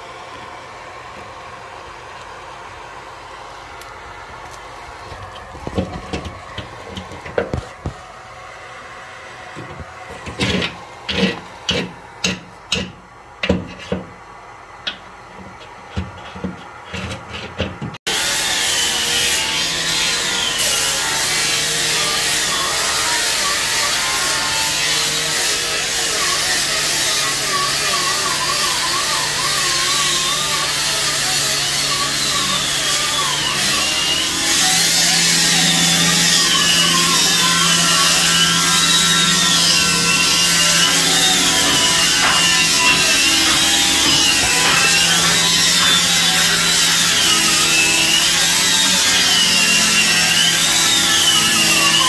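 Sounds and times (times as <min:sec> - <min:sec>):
ventilation blower rushing: 0:00.0 - 0:18.4, 0:31.9 - 0:52.0.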